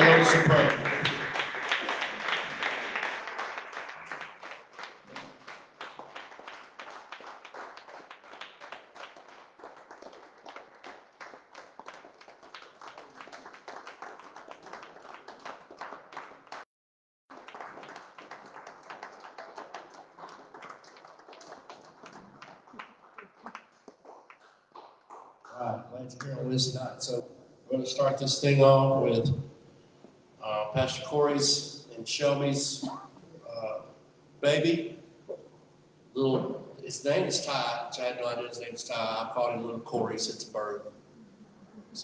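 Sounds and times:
congregation clapping: 0.0s - 16.6s, 17.3s - 25.6s.

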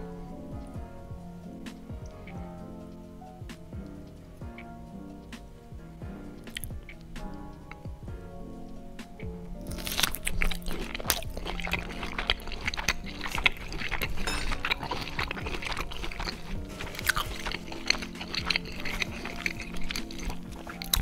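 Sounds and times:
background music with low notes: 0.0s - 21.0s
wet chewing with mouth clicks: 1.8s - 2.6s, 6.4s - 7.8s, 9.1s - 21.0s
biting into sausage: 6.5s - 7.0s, 9.6s - 21.0s.

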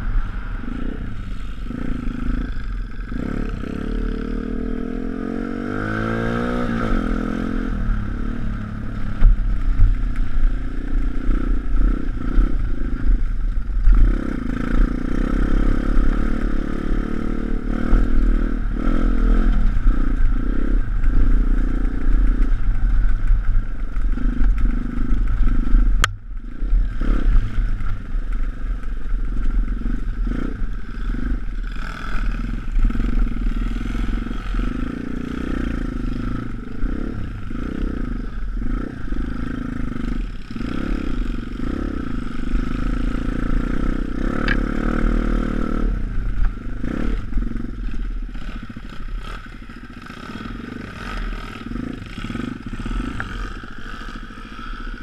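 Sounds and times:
wind rumble on microphone: 0.0s - 53.8s
pit bike engine accelerating: 0.0s - 55.0s.

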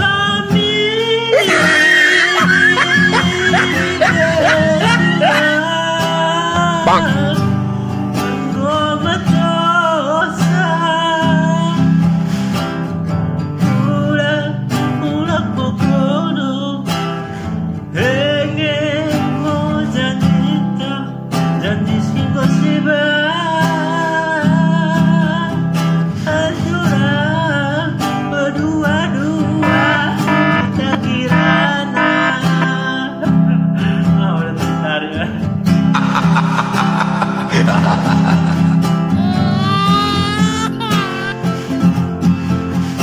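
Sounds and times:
man singing with vibrato: 0.0s - 7.5s, 26.3s - 35.4s, 36.0s - 41.8s
strummed acoustic guitar: 0.0s - 43.0s.

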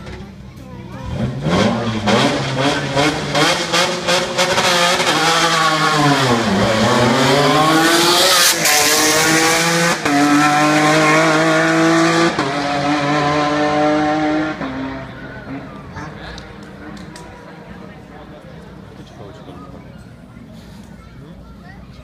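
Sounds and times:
rally car engine revving: 0.9s - 18.8s
car accelerating with upshifts: 1.0s - 18.1s.

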